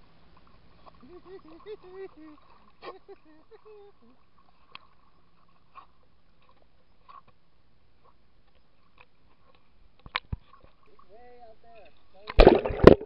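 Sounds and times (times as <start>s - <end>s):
muffled water lapping: 0.0s - 13.0s
soft ticks: 4.5s - 7.4s, 8.0s - 10.8s.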